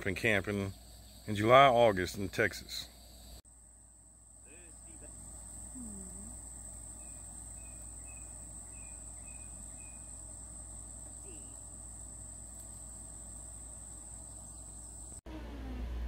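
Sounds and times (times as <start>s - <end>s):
insects trilling: 0.0s - 15.2s
faint chirps: 4.4s - 11.9s.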